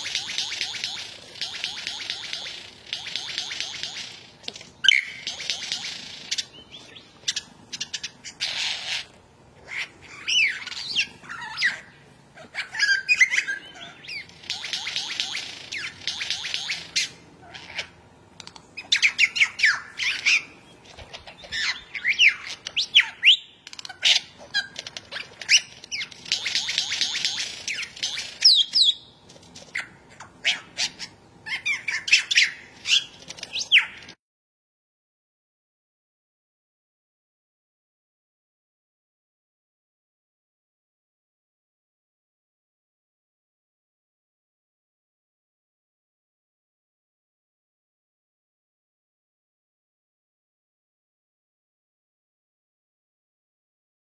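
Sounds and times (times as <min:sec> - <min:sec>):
lyrebird singing: 0:00.0 - 0:34.2.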